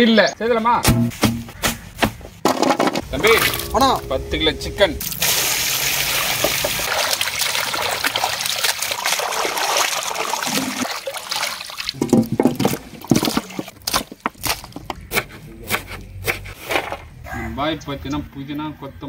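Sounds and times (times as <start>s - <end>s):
water pouring and trickling: 5.0s - 14.8s
water splashes and knocks: 5.8s - 15.0s.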